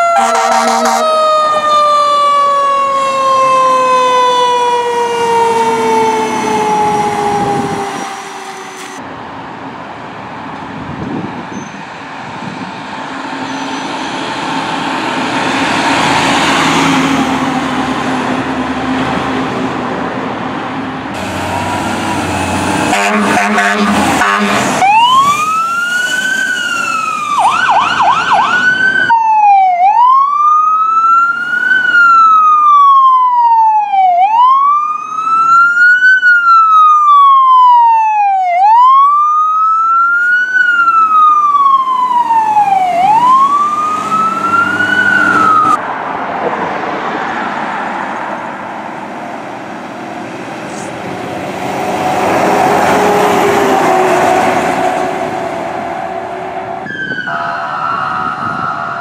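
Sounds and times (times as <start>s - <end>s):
electronic sirens wailing: 0.0s - 9.0s, 21.2s - 45.8s, 50.7s - 59.0s
truck engine driving past: 13.1s - 27.5s, 41.8s - 57.8s.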